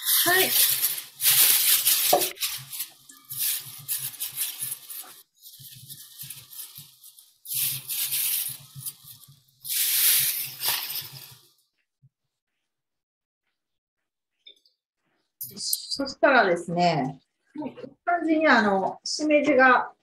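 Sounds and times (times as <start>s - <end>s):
vegetables sizzling in a pan: 0.0s - 11.5s.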